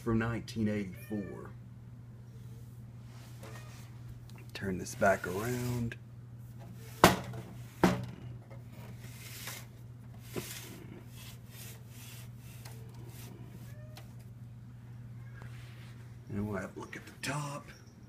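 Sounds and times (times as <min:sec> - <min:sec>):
soft rubbing: 0:02.4 - 0:07.0, 0:08.7 - 0:14.2, 0:15.3 - 0:16.3.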